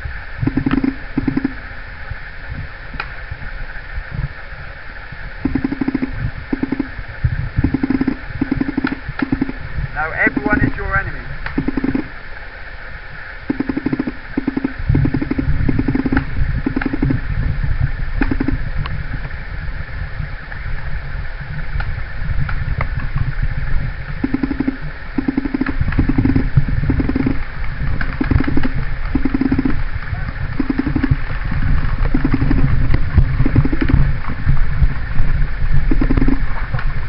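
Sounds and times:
steady low rumble: 0.0s - 37.0s
paintball markers firing bursts: 5.4s - 6.9s, 7.6s - 9.6s, 11.5s - 12.1s, 13.5s - 17.2s, 18.2s - 18.6s, 24.2s - 27.4s, 28.1s - 29.8s, 30.6s - 31.2s.

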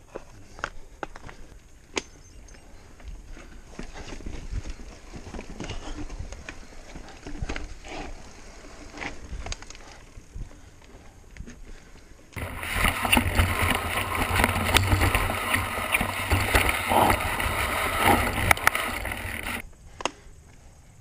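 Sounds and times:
mountain bike rattling over rocks: 3.3s - 10.0s, 12.4s - 19.6s.

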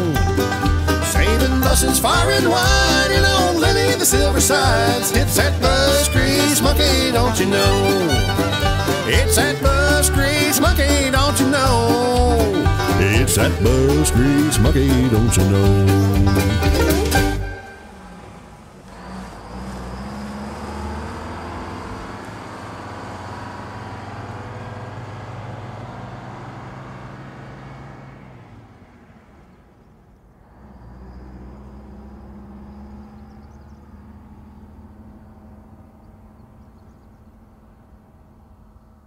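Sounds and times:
diesel bus engine running: 0.0s - 39.0s.

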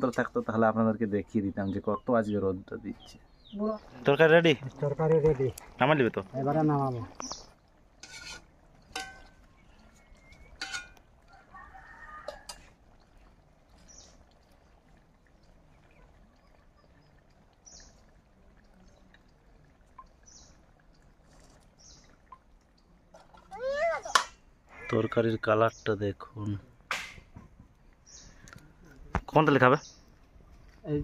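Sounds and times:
ladle clinking against pot: 8.0s - 9.5s, 10.3s - 11.0s
faint bird chirps: 9.4s - 10.6s, 15.7s - 22.4s.

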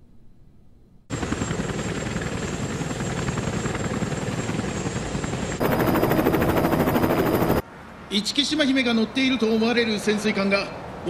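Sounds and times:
helicopter rotors chopping: 1.1s - 7.6s.

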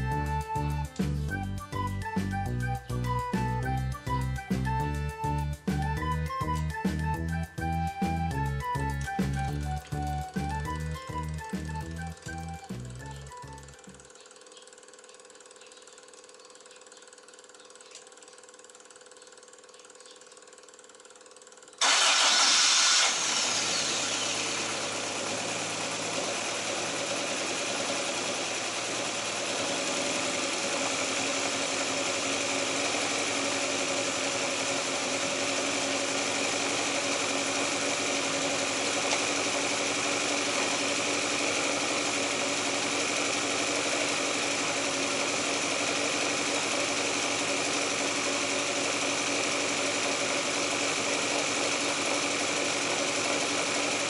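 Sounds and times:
car engine idling: 21.8s - 54.0s.

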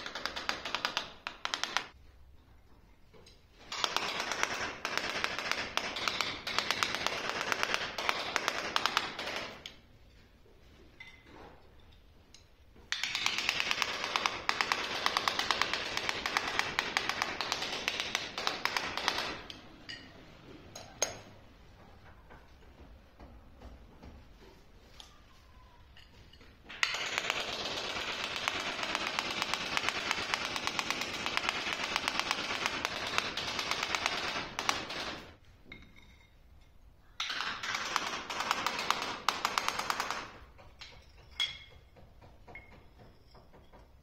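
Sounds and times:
rapid tapping on ceramic tiles: 0.0s - 2.0s, 3.7s - 9.8s, 12.9s - 19.6s, 26.7s - 35.4s, 37.2s - 44.0s.

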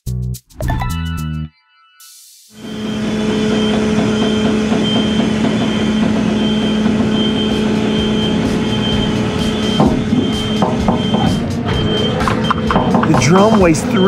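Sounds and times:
diesel truck engine humming: 2.8s - 14.0s.

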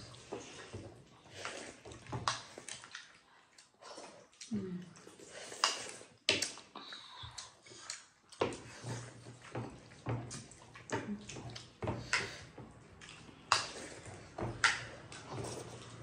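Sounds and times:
chewing and lip smacks: 1.5s - 8.4s, 12.9s - 16.0s.

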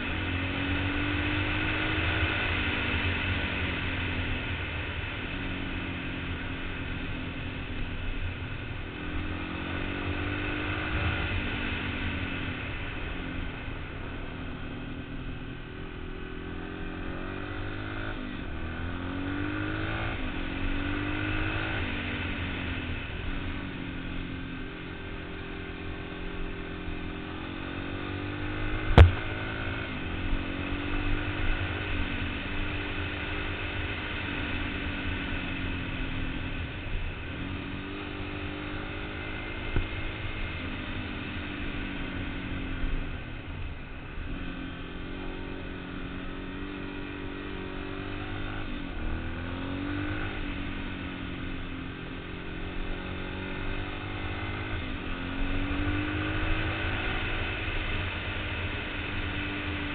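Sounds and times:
sharp knock: 29.0s - 29.3s.

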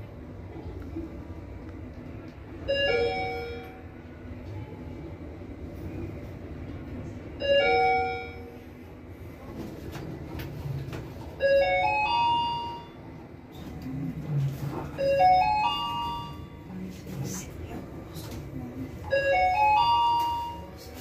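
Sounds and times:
elevator car humming: 0.0s - 21.0s
elevator electronic chime: 2.6s - 4.1s, 7.4s - 8.7s, 11.4s - 13.2s, 14.9s - 16.7s, 19.0s - 20.8s.

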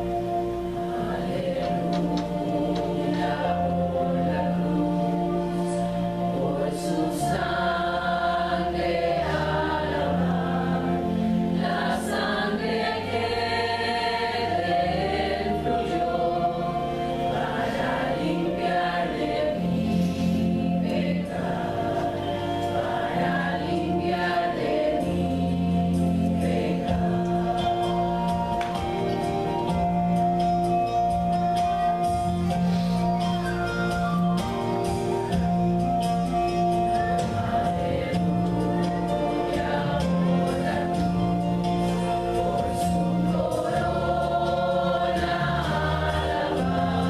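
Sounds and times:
women's choir singing: 0.0s - 30.5s, 34.4s - 47.0s
sustained instrumental accompaniment: 0.0s - 47.0s.

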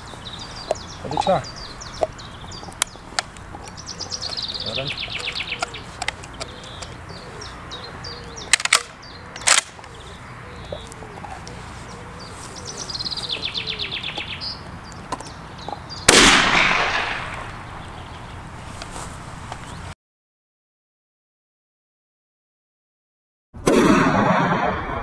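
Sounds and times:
songbirds singing: 0.0s - 20.0s
gun handling clicks: 2.7s - 4.5s, 5.2s - 7.0s, 8.5s - 10.0s, 16.1s - 17.5s
shotgun blast: 16.1s - 17.5s, 23.6s - 25.0s.

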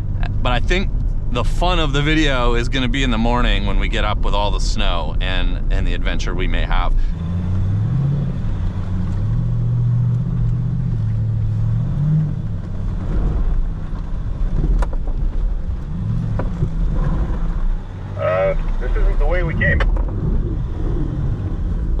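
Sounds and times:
diesel engine running: 0.0s - 22.0s
tyre noise on dirt road: 0.0s - 22.0s.

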